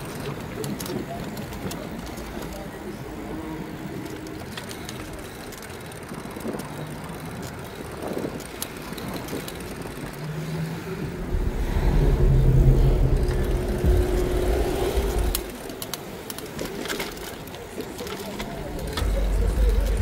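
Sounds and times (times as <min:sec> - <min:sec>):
vehicle engine passing: 0:11.0 - 0:15.7.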